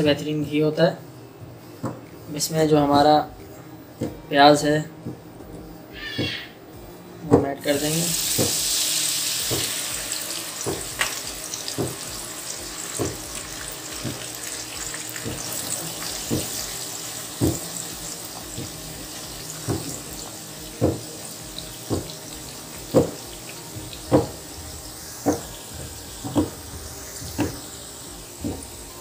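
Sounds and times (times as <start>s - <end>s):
onions sizzling in hot fat: 7.6s - 29.0s.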